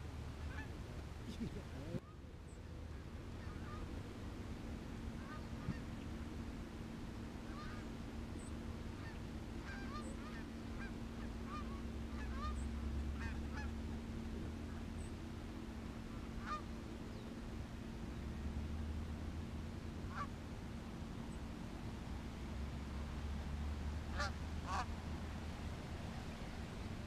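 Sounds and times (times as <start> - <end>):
geese honking: 0.0 - 2.2, 2.9 - 4.0, 5.2 - 6.1, 7.4 - 17.2, 19.7 - 21.5, 23.5 - 25.5
steady low rumble: 0.0 - 27.0.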